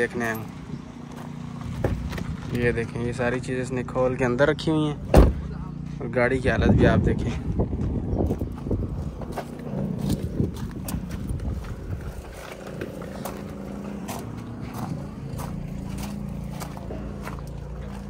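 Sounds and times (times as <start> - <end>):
footsteps on gravel: 0.0 - 3.2, 7.1 - 18.0
low engine hum: 0.0 - 18.0.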